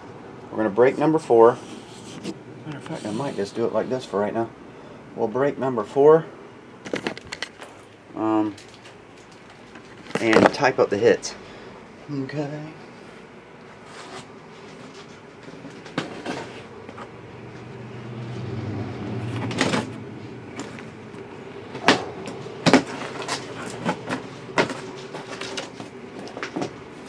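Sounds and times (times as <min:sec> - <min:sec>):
cardboard scraping: 0:21.7 - 0:26.8.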